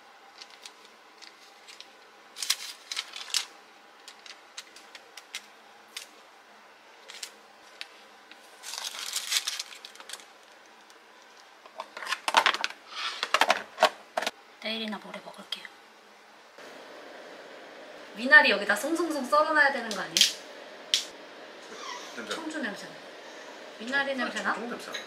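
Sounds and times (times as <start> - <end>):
parchment paper rustling: 0.3 - 6.1, 7.0 - 10.6.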